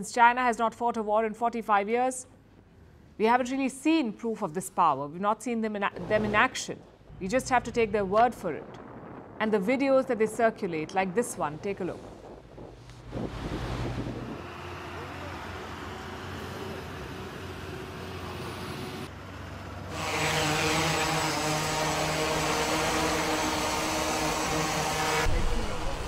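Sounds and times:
drone propellers buzzing: 11.3s - 19.1s, 19.8s - 26.0s.

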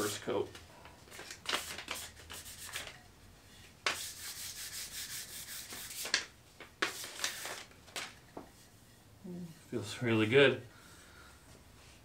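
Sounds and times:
sandpaper sanding wood: 1.6s - 2.8s, 3.9s - 6.1s.

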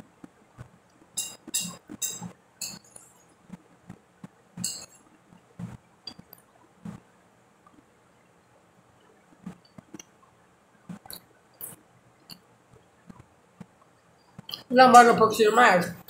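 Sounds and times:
tableware clinking: 1.2s - 3.2s, 4.6s - 5.0s.

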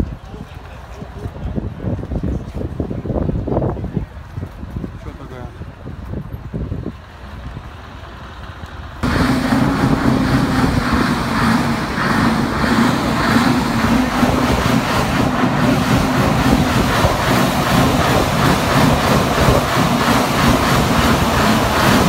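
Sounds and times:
outdoor background noise: 0.0s - 22.0s
truck diesel engine running: 7.9s - 22.0s.

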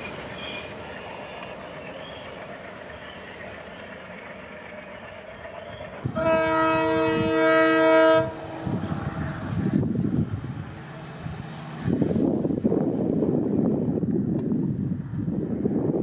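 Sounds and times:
approaching locomotive rumble: 0.0s - 16.0s
train rumbling on track: 0.0s - 16.0s
locomotive air horn: 6.1s - 8.4s.

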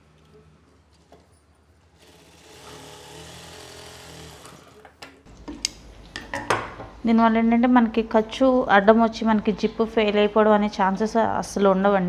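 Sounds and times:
sewing machine stitching: 0.0s - 5.0s.

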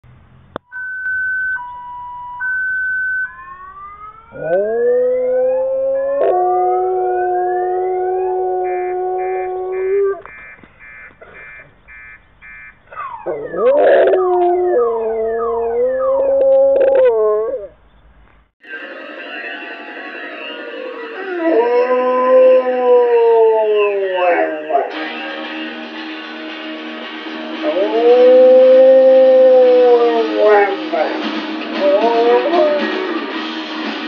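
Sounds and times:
electronic siren: 0.7s - 17.7s, 18.6s - 25.0s
dog howling: 4.3s - 10.2s, 13.0s - 17.8s, 21.2s - 24.9s, 27.6s - 31.2s, 31.8s - 33.2s.

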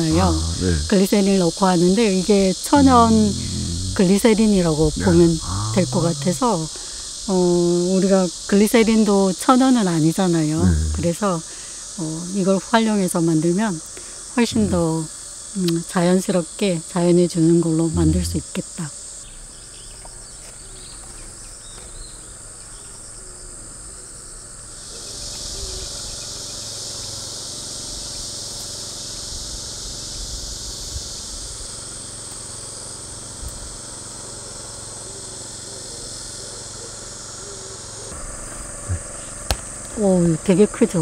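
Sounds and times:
insects buzzing shrill: 0.0s - 19.7s.

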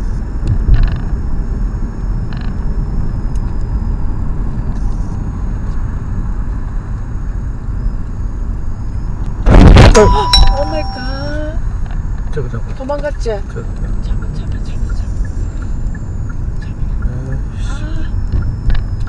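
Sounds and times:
car road and engine rumble: 0.0s - 19.0s
sudden loud burst of noise: 9.4s - 11.5s.

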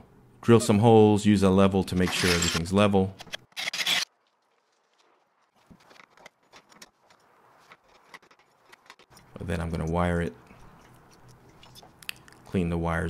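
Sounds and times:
scraping rub: 5.6s - 11.9s
tools clicking and scraping on wall: 5.7s - 11.8s.

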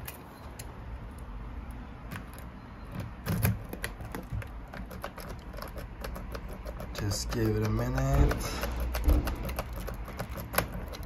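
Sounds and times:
key working in a door lock: 2.0s - 11.0s
keys rattling on a keyring: 2.2s - 11.0s.

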